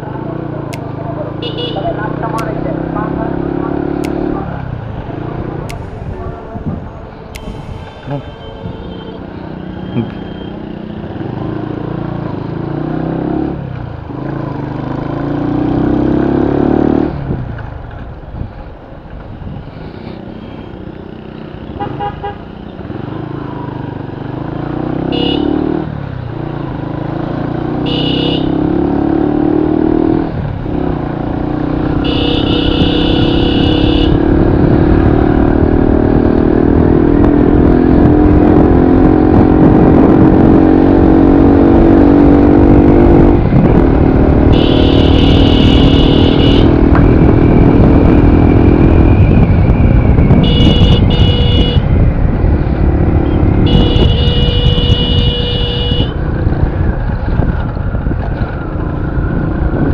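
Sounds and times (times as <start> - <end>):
motorcycle engine revving: 0.0 - 17.6, 20.2 - 59.9
horn honking: 1.3 - 11.0, 21.7 - 22.5, 25.0 - 25.8, 27.8 - 28.8, 31.8 - 34.4, 44.3 - 47.0, 50.3 - 52.0, 53.2 - 56.3.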